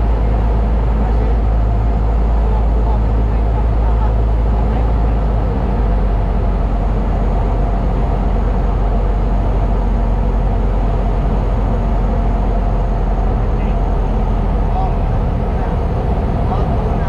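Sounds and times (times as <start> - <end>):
light aircraft engine droning: 0.0 - 17.0.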